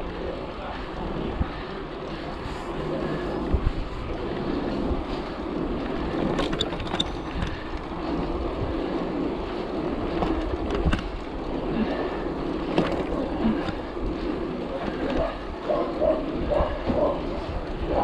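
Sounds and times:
bike clicks and rattles: 0.0s - 18.0s
tyres rolling on asphalt: 0.0s - 18.0s
wind rushing over microphone: 0.0s - 18.0s.

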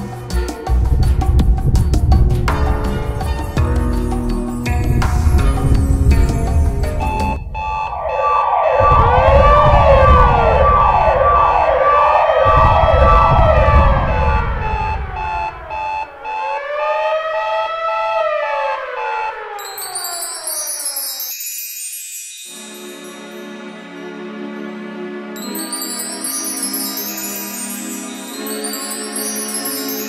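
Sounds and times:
low rumble: 0.8s - 16.0s
electronic siren-like wailing tones: 5.0s - 20.5s
fast pulsing beep: 5.1s - 16.5s.

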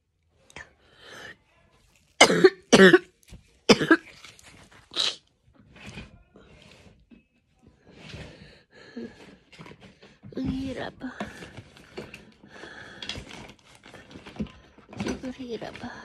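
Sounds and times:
woman coughing: 2.2s - 3.1s, 3.7s - 4.1s.

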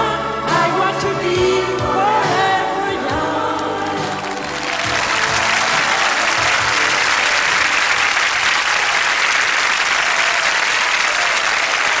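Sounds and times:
music: 0.0s - 10.4s
studio audience applauding: 3.5s - 12.0s.

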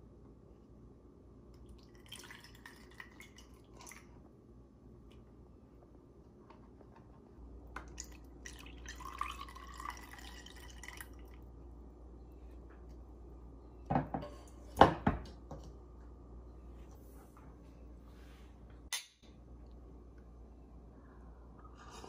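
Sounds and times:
liquid trickling and dripping: 7.8s - 11.5s.

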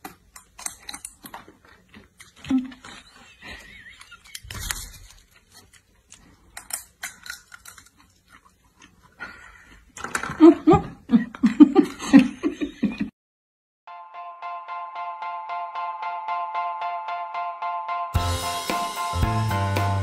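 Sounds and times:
person laughing hard: 2.5s - 4.6s, 10.3s - 13.1s.

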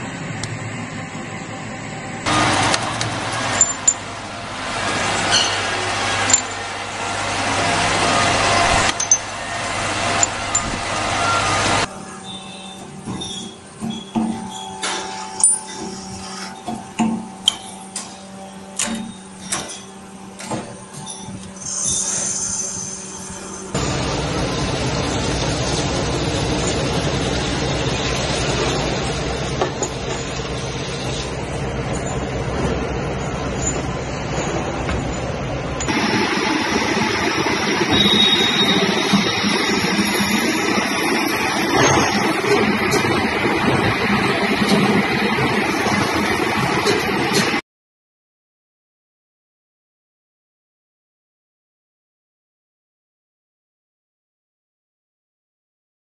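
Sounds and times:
thread-rolling machine din: 0.0s - 21.6s, 35.4s - 47.6s
steady hum: 23.3s - 47.6s.

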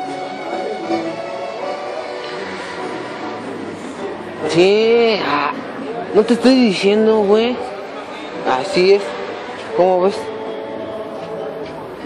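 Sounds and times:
music with sustained notes: 0.0s - 5.2s.

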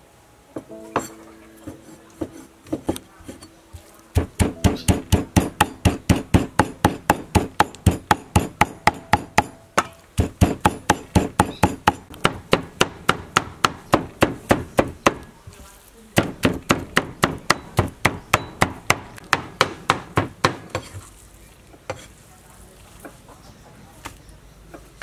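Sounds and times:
cleaver chopping on wooden board: 2.2s - 3.4s, 4.2s - 15.3s, 16.2s - 21.0s.

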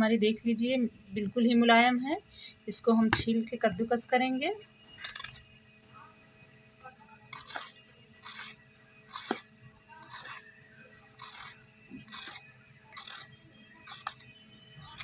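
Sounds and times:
vegetable peeler scraping skin: 5.0s - 5.4s, 7.3s - 10.5s, 11.1s - 15.0s.

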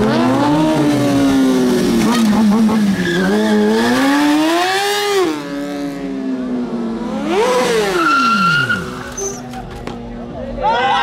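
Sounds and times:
motorcycle engine revving: 0.0s - 9.6s
tyre squealing on asphalt: 1.8s - 4.4s, 7.5s - 9.9s.

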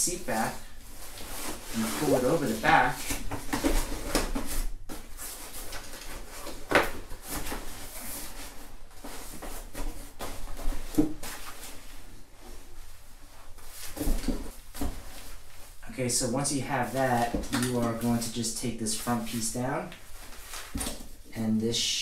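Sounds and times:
fabric cover rustling and rubbing: 0.4s - 15.8s, 20.0s - 21.2s.

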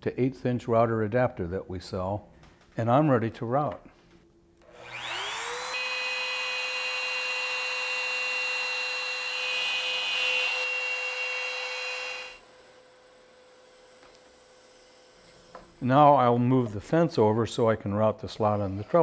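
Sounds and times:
router whining: 4.6s - 15.8s.

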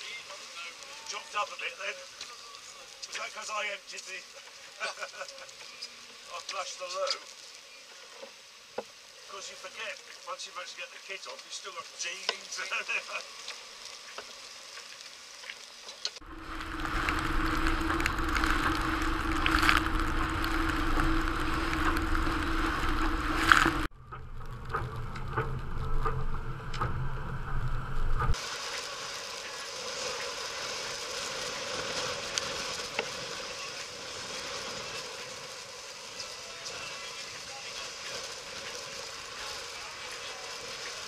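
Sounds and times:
water rushing past hull: 16.2s - 23.9s
wind buffeting microphone: 16.2s - 27.0s
steady low hum: 16.2s - 28.4s.

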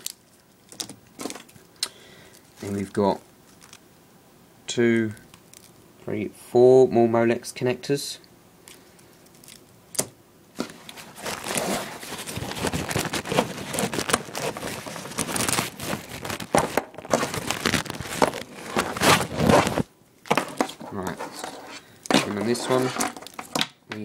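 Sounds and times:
small clicks and scrapes: 2.3s - 3.8s, 18.1s - 23.7s
cables and fabric bag rustling: 10.6s - 23.6s.

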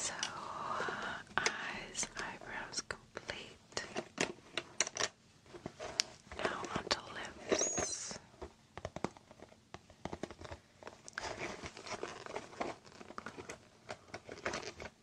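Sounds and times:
plastic bag crinkling: 11.0s - 15.0s.

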